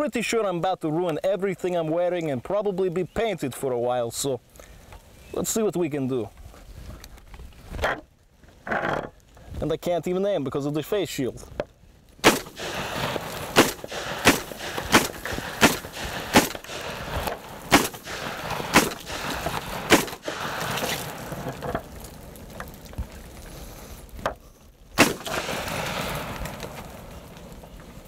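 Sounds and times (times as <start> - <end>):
shotgun shots: 12.2 - 21.2, 25.0 - 26.4.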